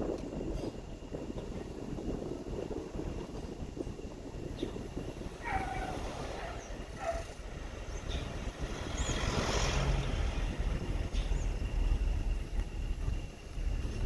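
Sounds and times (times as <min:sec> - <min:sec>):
vehicle engine and tyre noise: 0:00.0 - 0:14.0
pickup truck passing: 0:05.4 - 0:14.0.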